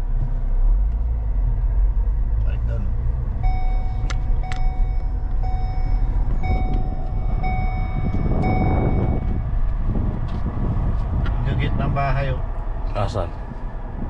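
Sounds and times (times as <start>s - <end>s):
car cabin road rumble: 0.0s - 14.0s
car warning chime beeping: 3.4s - 9.5s.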